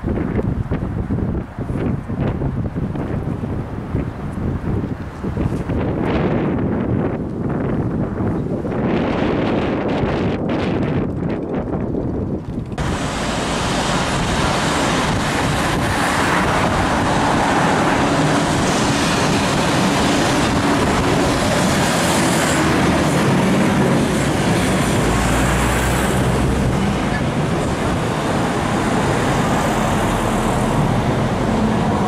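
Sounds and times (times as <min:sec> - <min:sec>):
city street traffic: 0:00.0 - 0:09.6, 0:10.9 - 0:32.0
minibus engine passing: 0:12.8 - 0:32.0.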